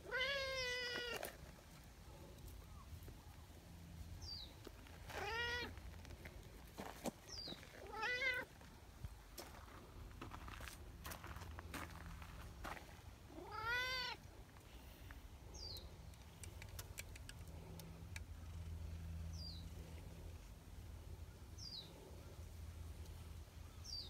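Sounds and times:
cat meowing: 0.0s - 1.2s, 5.1s - 5.8s, 7.8s - 8.5s, 13.4s - 14.2s
small bird chirping: 15.5s - 20.2s, 23.0s - 24.0s.

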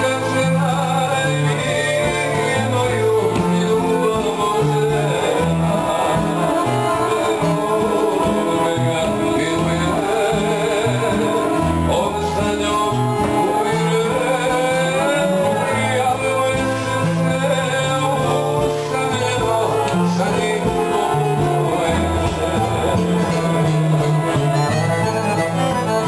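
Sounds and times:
accordion: 0.0s - 26.0s
guitar: 0.0s - 26.0s
man singing into a microphone: 0.0s - 26.0s
plucked string instrument: 0.0s - 26.0s.

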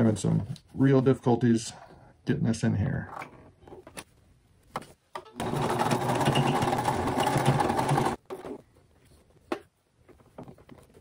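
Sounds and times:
sewing machine stitching: 5.4s - 8.2s.

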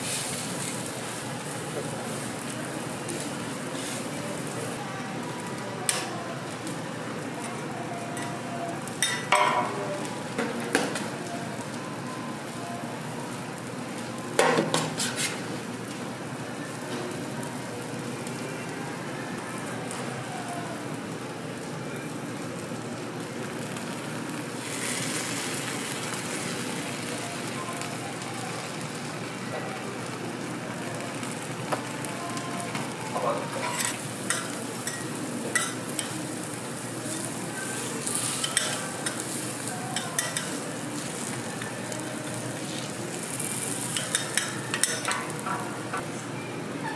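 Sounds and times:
food sizzling on griddle: 0.0s - 46.9s
spatulas scraping and tapping griddle: 14.4s - 15.5s, 33.5s - 36.2s, 38.0s - 41.8s, 42.6s - 46.1s.

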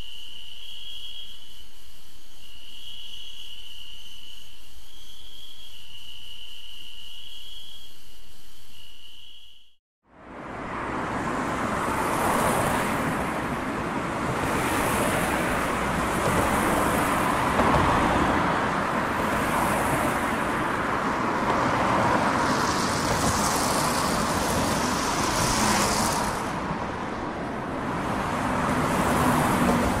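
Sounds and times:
motorway traffic rushing: 10.1s - 30.0s
vehicles passing: 10.1s - 30.0s.

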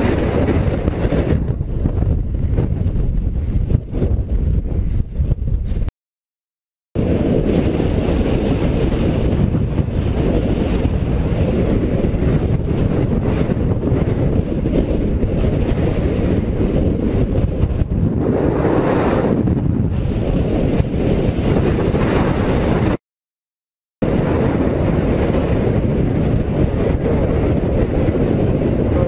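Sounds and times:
wind buffeting microphone: 0.0s - 5.9s, 7.0s - 23.0s, 24.0s - 29.0s.

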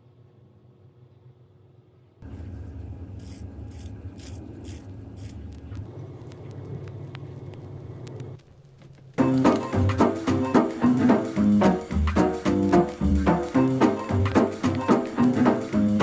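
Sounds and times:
low steady hum: 0.0s - 9.2s.

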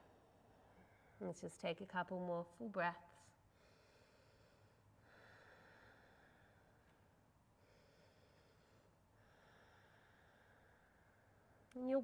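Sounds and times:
faint slow breathing: 3.5s - 11.7s.

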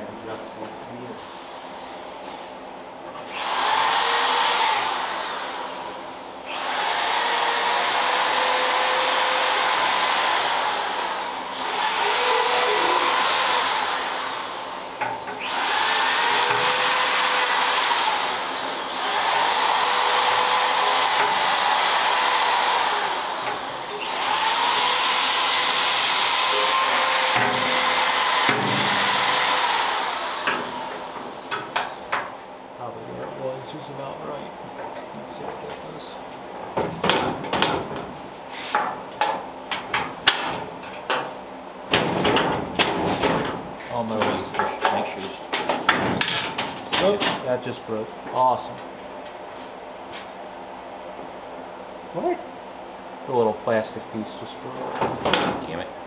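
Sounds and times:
power tool whining: 1.2s - 32.5s.

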